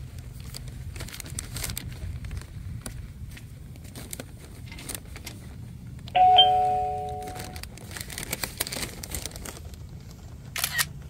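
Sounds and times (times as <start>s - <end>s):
two-tone doorbell chime: 6.2s - 7.6s.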